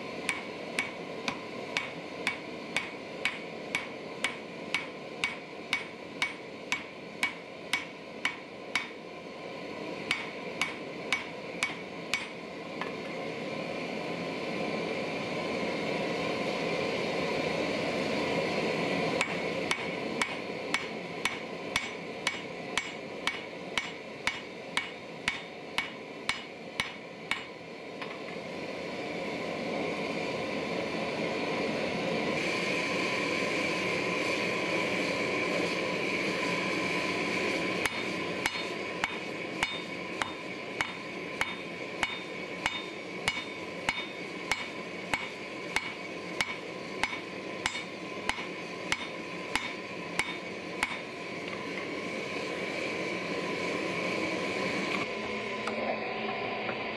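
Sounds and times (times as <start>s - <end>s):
gas forge roaring: 0.0s - 56.9s
hammer striking steel on anvil: 0.2s - 9.0s, 10.0s - 12.9s, 19.2s - 28.2s, 37.8s - 51.2s.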